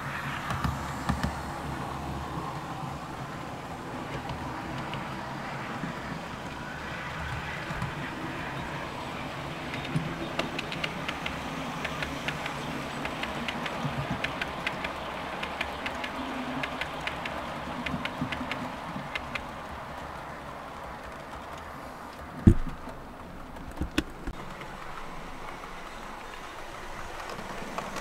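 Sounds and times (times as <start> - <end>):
model train running rumble: 0.0 - 23.6, 24.2 - 28.0
sharp clicks: 9.7 - 19.6.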